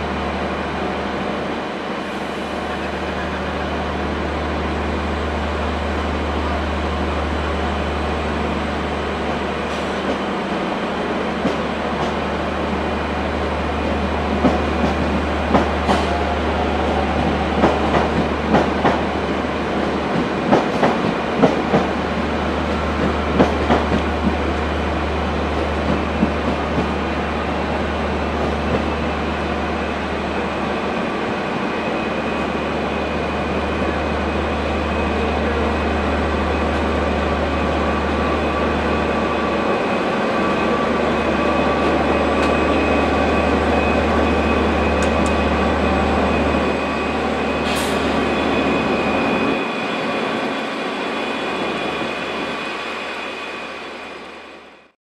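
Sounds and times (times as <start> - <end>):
diesel locomotive passing slowly: 0.0 - 54.9
high squeal: 31.6 - 54.6.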